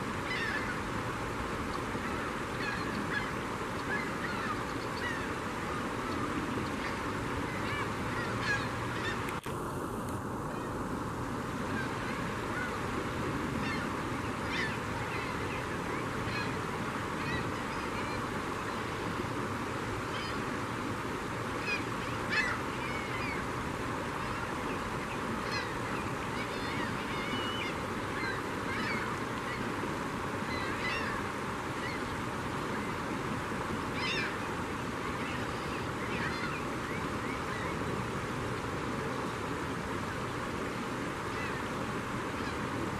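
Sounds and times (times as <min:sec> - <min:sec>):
river water rushing: 0:00.0 - 0:42.9
gulls squawking: 0:00.2 - 0:01.0, 0:01.8 - 0:09.4, 0:11.7 - 0:19.3, 0:20.0 - 0:20.5, 0:21.5 - 0:33.2, 0:33.8 - 0:38.1, 0:41.2 - 0:42.8.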